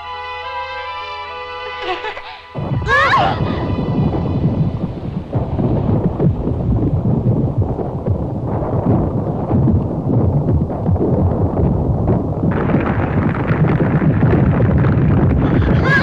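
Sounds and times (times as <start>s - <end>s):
deep earthquake-like rumble: 2.5s - 16.0s.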